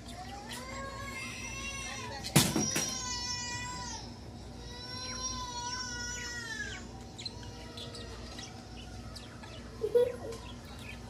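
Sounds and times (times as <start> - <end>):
budgerigars chirping: 6.6 - 11.0.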